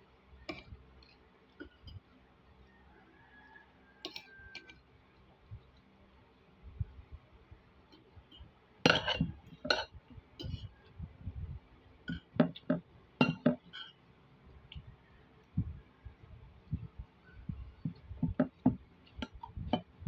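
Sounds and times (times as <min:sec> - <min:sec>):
cutlery clinking on a plate: 0:04.0 - 0:04.8, 0:08.9 - 0:10.7, 0:12.1 - 0:14.0.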